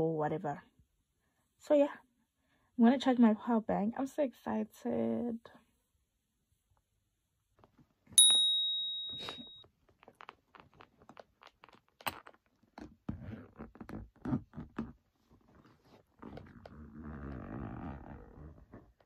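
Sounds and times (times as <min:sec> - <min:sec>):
bright ringing ping: 0:08.2 - 0:09.6.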